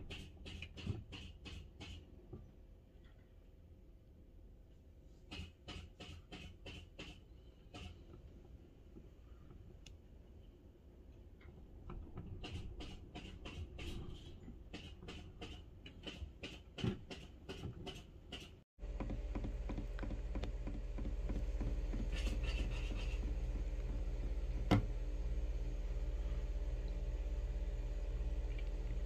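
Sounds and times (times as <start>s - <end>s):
low mechanical hum: 16.9s - 29.0s.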